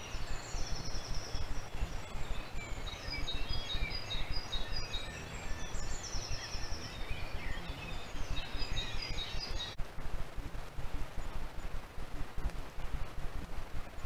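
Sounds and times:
bird trill: 0:00.0 - 0:09.8
small birds chirping: 0:00.0 - 0:09.8
low rumbling noise: 0:00.0 - 0:14.0.

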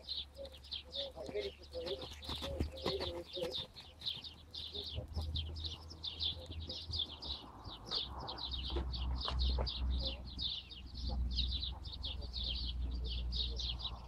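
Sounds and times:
bird chirping: 0:00.0 - 0:14.0.

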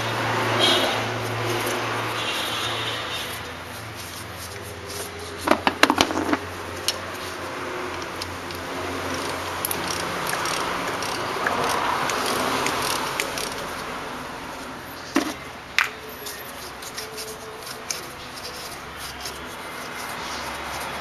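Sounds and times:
ratchet clicking: 0:07.9 - 0:13.8.

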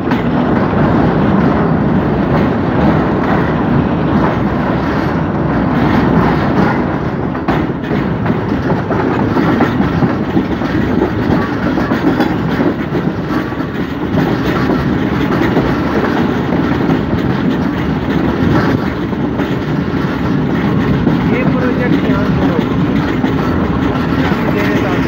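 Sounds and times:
train wheels rumbling and rattling: 0:00.0 - 0:25.0.

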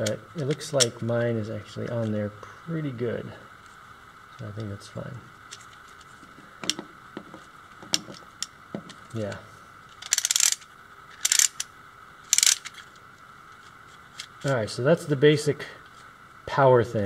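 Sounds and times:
plastic parts clicking: 0:09.9 - 0:11.7, 0:12.3 - 0:13.0
plastic ratchet rapid clicking: 0:10.0 - 0:10.6, 0:11.2 - 0:11.7, 0:12.3 - 0:12.8.

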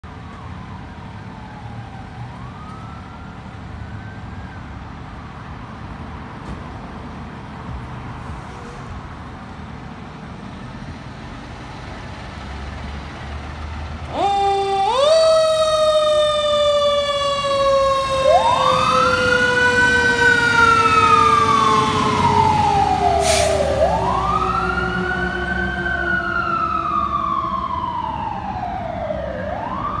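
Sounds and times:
fire engine rumbling: 0:00.0 - 0:30.0
distant siren sweep: 0:00.2 - 0:05.0, 0:14.1 - 0:30.0
siren falling in pitch: 0:14.1 - 0:30.0
siren wailing up and down: 0:14.1 - 0:30.0.

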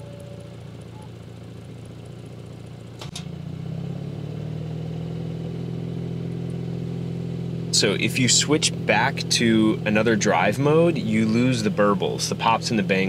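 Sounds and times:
car engine idling: 0:00.0 - 0:13.0
sharp click: 0:03.0 - 0:03.3.

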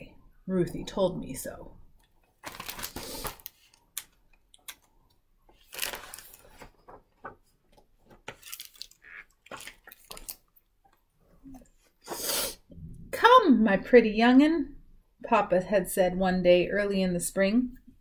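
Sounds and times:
book pages turning: 0:02.0 - 0:10.6.

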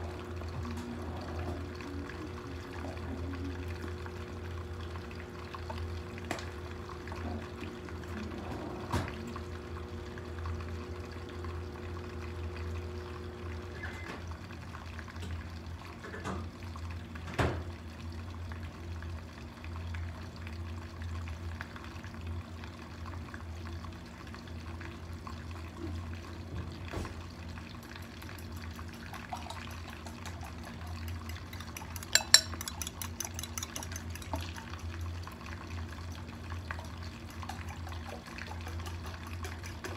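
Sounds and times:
low kitchen hum: 0:00.0 - 0:39.9
utensil clinking on ceramic bowl: 0:31.0 - 0:34.6
cookware and utensils knocking: 0:32.0 - 0:33.0.

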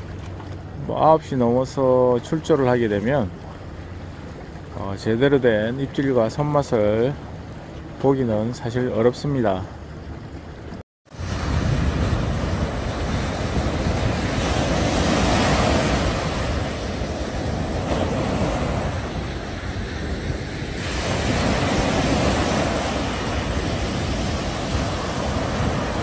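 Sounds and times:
wind rumbling on microphone: 0:10.0 - 0:26.0
waves washing onto beach: 0:11.1 - 0:26.0.

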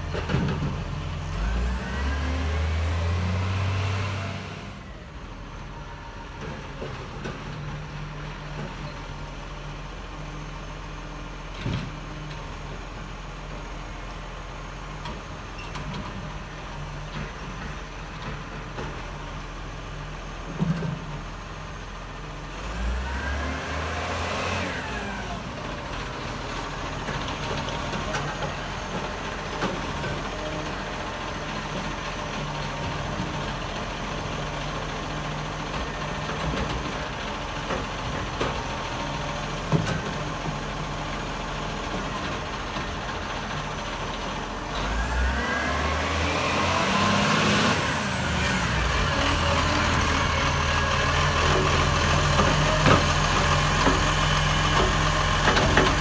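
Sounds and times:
garbage truck diesel engine: 0:00.0 - 0:56.0.

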